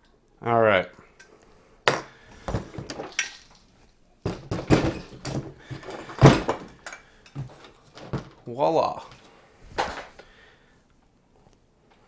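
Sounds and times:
metal parts clinking and knocking: 0:01.9 - 0:08.4.

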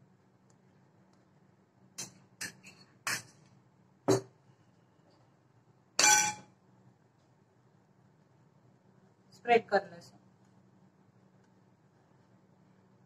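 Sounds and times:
ringing metal clang: 0:06.0 - 0:06.5
utensils knocking on glass bowl: 0:06.0 - 0:06.5.

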